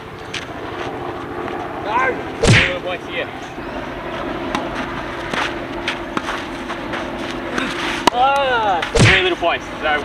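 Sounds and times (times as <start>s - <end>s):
tennis ball hit and bouncing: 4.5s - 6.4s, 7.5s - 9.3s.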